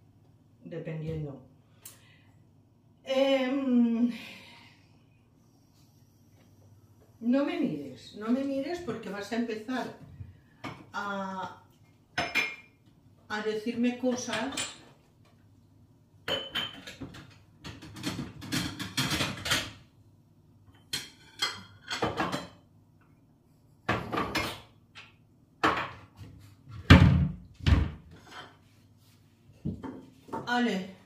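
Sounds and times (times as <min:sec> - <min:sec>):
dishes clinking and knocking: 0:12.2 - 0:12.8, 0:16.2 - 0:19.8, 0:20.7 - 0:22.7, 0:23.8 - 0:26.2.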